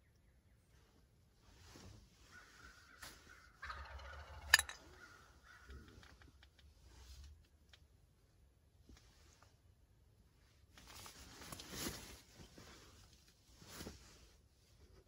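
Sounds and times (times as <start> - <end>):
turkey gobbling: 2.3 - 5.9.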